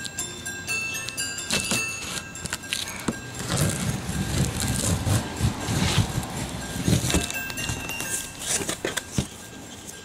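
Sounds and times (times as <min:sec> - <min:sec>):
fingers scraping cardboard box: 0:03.4 - 0:07.4.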